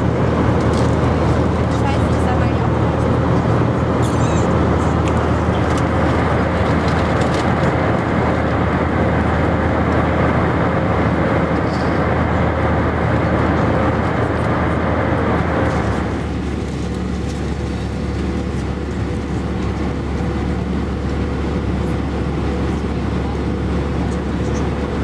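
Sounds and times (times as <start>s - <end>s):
jet airliner cabin noise: 0.0s - 25.0s.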